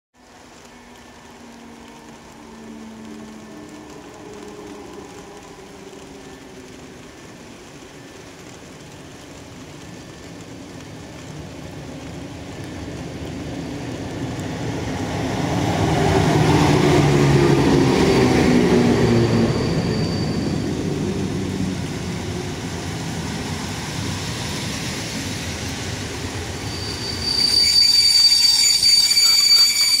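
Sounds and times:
train running noise: 0.2 - 30.0
high-pitched wheel and brake squeal: 18.8 - 21.1, 26.6 - 30.0.

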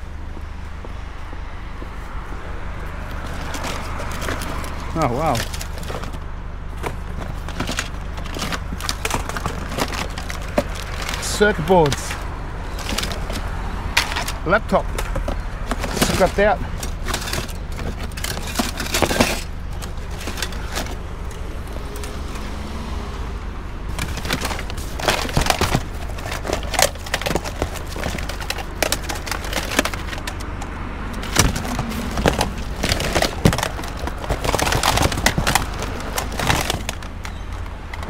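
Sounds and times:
steady low rumble: 0.0 - 11.2, 16.7 - 38.0
plastic and metal junk clattering: 5.0 - 21.0, 23.9 - 30.6, 31.2 - 38.0.

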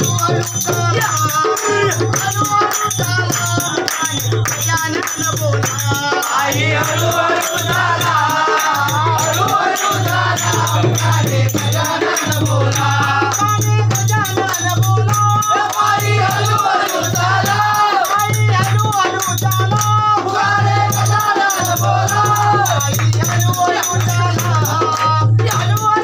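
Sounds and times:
people clapping: 0.0 - 13.6, 14.4 - 26.0
group singing in unison: 0.0 - 26.0
rattling percussion beat: 0.0 - 26.0.

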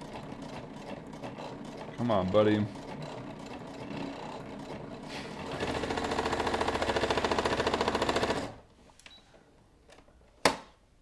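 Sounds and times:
sewing machine stitching leather: 0.0 - 8.6.

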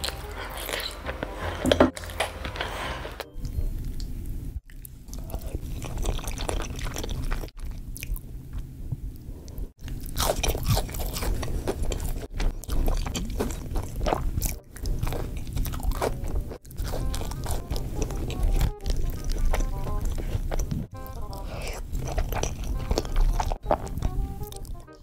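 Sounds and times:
crunchy bites and chewing: 9.8 - 25.0.

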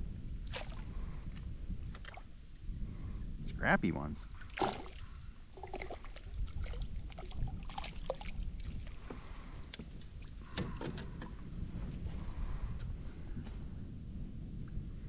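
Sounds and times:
wind rumble on microphone: 0.0 - 15.0
gear knocking against kayak hull: 9.0 - 11.4.

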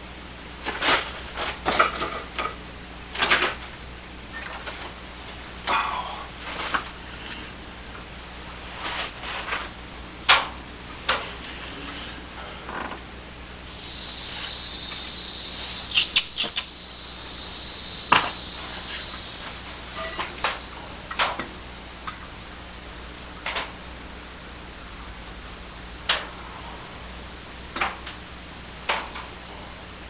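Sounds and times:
propane torch hissing: 5.0 - 9.9, 10.9 - 30.0.

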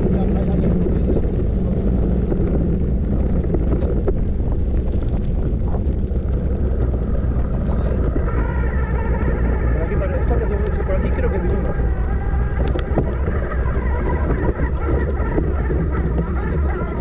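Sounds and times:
wind buffeting microphone: 0.0 - 17.0.

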